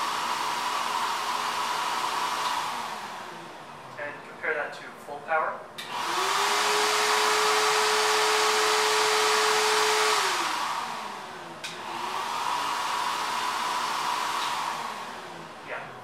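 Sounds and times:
router whine and rushing hiss: 0.0 - 3.8, 5.8 - 16.0.

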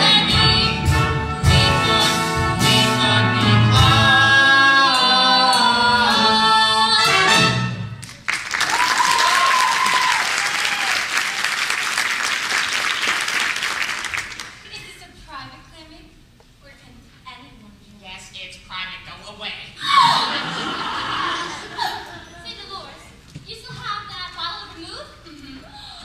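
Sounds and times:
duet singing with accompaniment: 0.0 - 7.8
audience applause: 8.0 - 14.6
audience cheer: 8.6 - 11.8.

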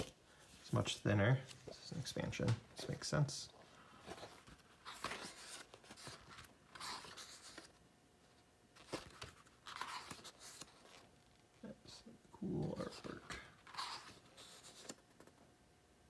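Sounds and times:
book pages turning: 4.0 - 7.8, 8.8 - 11.4, 12.6 - 15.4.

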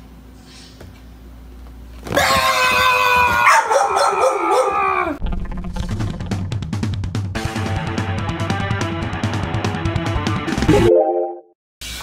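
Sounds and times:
loud drawn-out scream: 2.2 - 5.2
music with drum beat: 6.2 - 10.7.

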